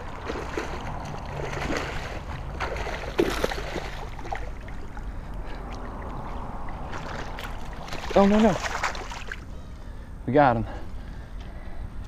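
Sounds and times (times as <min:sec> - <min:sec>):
fish thrashing and splashing: 0:00.0 - 0:05.0, 0:05.6 - 0:09.5.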